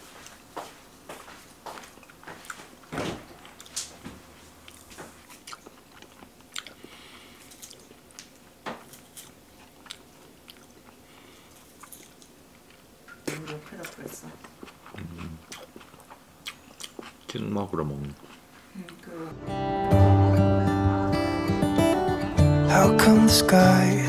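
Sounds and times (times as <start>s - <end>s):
biting and chewing: 4.6s - 19.0s.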